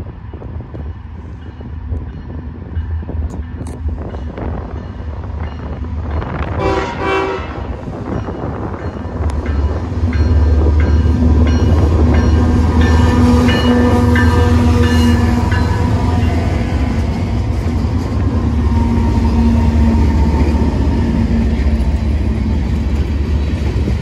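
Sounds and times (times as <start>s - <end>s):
diesel locomotive engine rumble: 0.0s - 24.0s
train horn blast: 6.4s - 7.9s, 12.8s - 16.0s.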